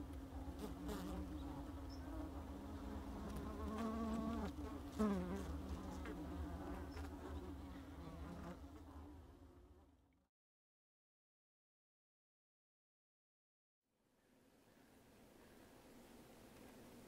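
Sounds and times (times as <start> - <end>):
bees flying close past: 0.2 - 9.9
bees buzzing as a mass: 0.5 - 8.9.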